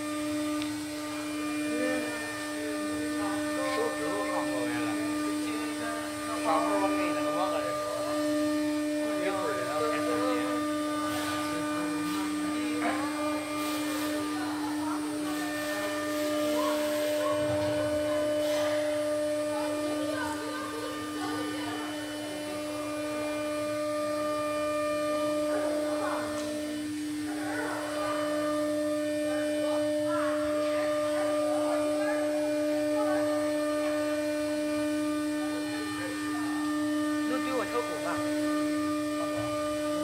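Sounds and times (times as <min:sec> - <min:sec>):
cnc router machine hum: 0:00.0 - 0:40.0
faint workshop sounds: 0:00.0 - 0:40.0.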